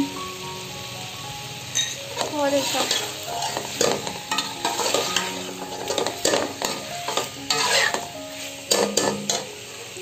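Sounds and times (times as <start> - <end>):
food sizzling: 0.0 - 10.0
metal spoon scraping a pan: 1.8 - 9.5.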